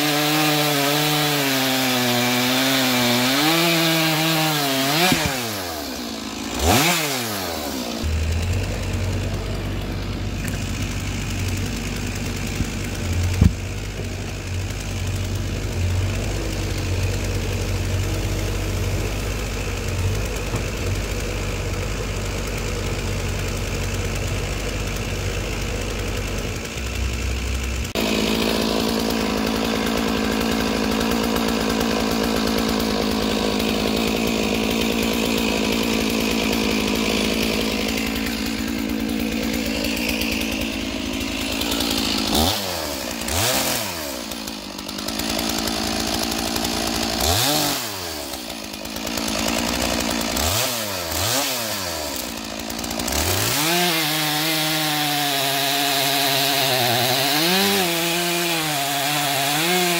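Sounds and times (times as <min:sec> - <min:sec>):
chainsaw idling: 0:00.0 - 0:59.9
excavator diesel engine running: 0:07.8 - 0:47.3.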